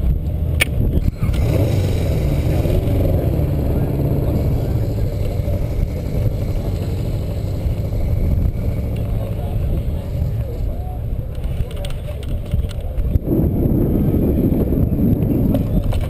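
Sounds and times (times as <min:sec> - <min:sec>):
steady low rumble: 0:00.0 - 0:16.0
kart engine wavering pitch: 0:01.0 - 0:11.3.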